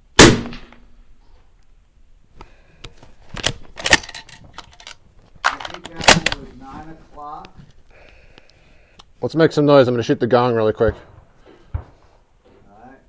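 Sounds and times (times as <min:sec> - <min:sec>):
rifle bolt clicking and clacking: 0:03.4 - 0:06.4.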